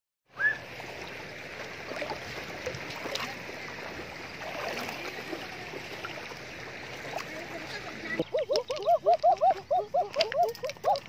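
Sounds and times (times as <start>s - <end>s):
splashes of wading: 0.3s - 11.0s
river water rushing over gravel: 0.6s - 11.0s.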